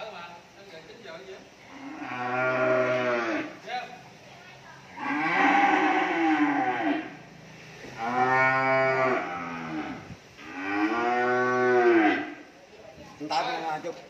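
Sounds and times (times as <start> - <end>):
cattle mooing: 1.6 - 3.6, 4.9 - 7.2, 8.0 - 12.4.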